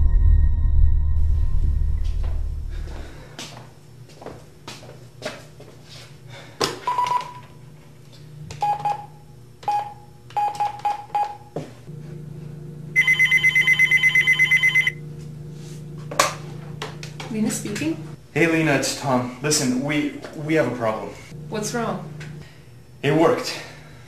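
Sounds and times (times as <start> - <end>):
desk phone ringing: 6.9 - 7.6, 8.6 - 11.7, 13.0 - 15.0
short keypad beeps: 13.0 - 15.0.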